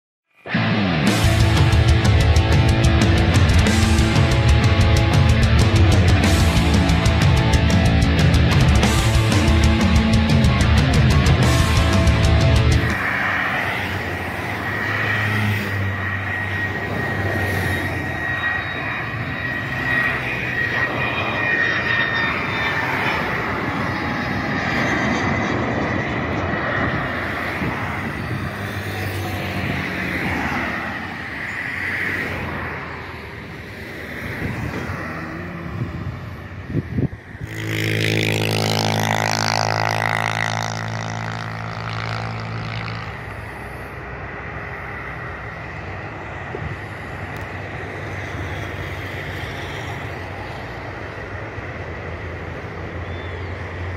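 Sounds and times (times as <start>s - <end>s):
propeller engine drone overhead: 0.3s - 53.9s
jet engines whining: 0.4s - 53.9s.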